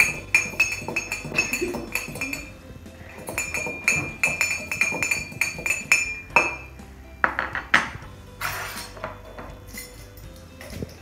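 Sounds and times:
spoon clinking in ceramic mug: 0.0s - 2.6s, 3.2s - 6.7s.

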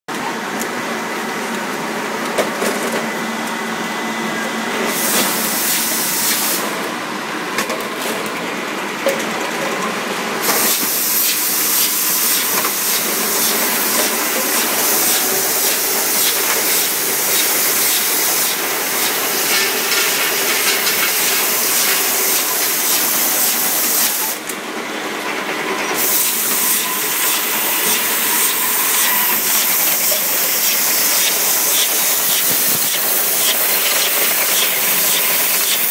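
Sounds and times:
loud hiss: 4.9s - 6.7s, 10.4s - 24.4s, 26.0s - 35.9s
bottles clattering on conveyor: 9.0s - 24.3s, 25.9s - 35.9s.

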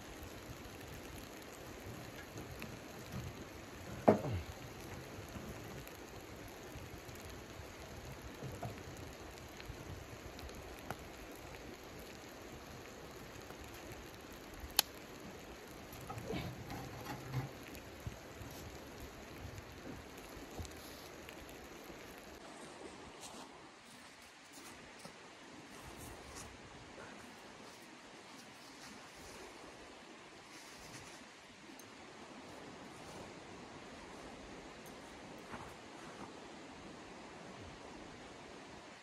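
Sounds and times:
fire crackling: 0.0s - 39.0s
log scraping and knocking: 2.1s - 4.6s, 15.9s - 17.8s
wood snapping: 14.7s - 15.0s.

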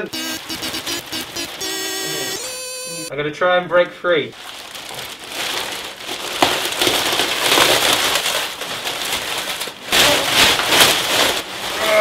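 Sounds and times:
wrapping paper crinkling and tearing: 4.4s - 12.0s.

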